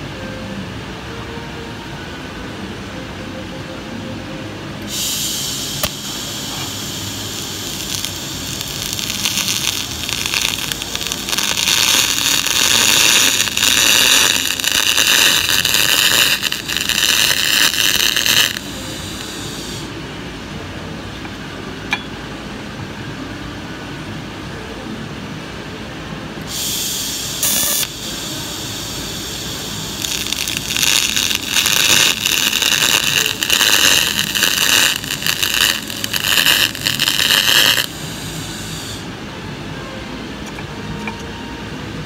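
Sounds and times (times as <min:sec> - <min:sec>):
low workshop rumble: 0:00.0 - 0:42.0
faint gas hiss: 0:04.8 - 0:20.2, 0:26.4 - 0:40.7
welding arc hissing and crackling: 0:04.9 - 0:20.0, 0:26.5 - 0:39.1.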